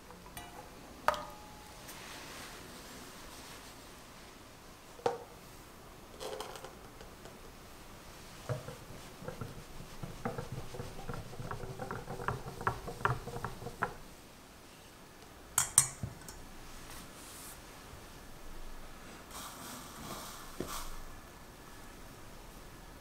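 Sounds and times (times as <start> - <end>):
whisk ticking against glass bowl: 8.5 - 14.0.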